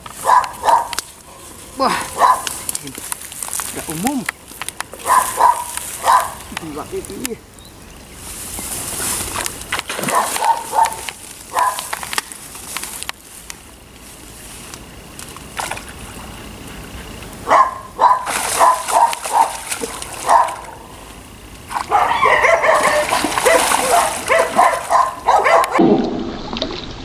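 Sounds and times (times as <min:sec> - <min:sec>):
dog yelping barks: 0:00.2 - 0:01.0, 0:02.0 - 0:02.6, 0:05.0 - 0:06.5, 0:10.0 - 0:11.9, 0:17.4 - 0:20.9, 0:21.9 - 0:25.8.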